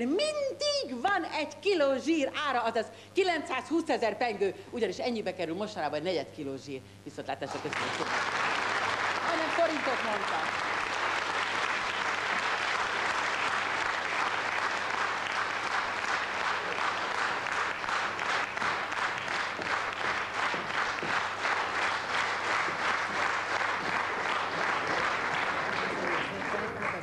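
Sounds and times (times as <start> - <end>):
audience applauding: 7.6 - 27.0
rhythmic clapping in unison: 7.6 - 27.0.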